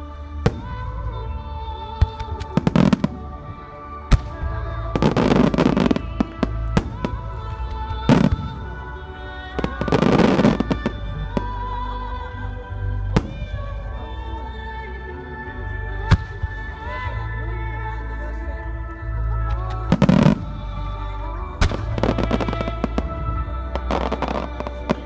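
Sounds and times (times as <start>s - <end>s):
show music: 0.0s - 25.0s
fireworks crackling: 2.0s - 8.9s, 21.6s - 25.0s.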